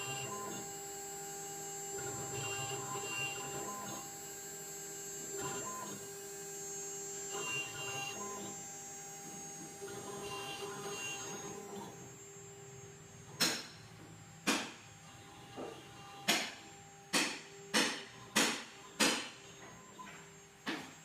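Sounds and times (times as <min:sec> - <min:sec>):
stepper motor buzzing: 0:00.0 - 0:13.4.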